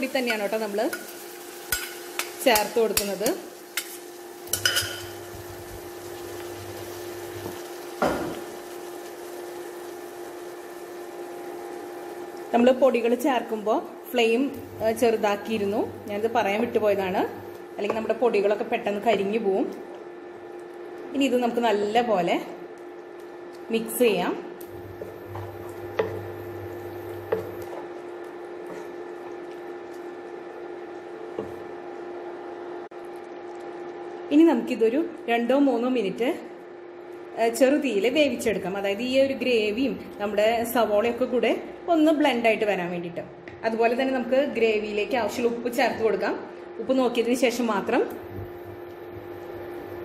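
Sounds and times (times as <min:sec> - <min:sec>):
frying hiss: 0:00.0 - 0:13.2
induction cooktop humming: 0:00.0 - 0:50.0.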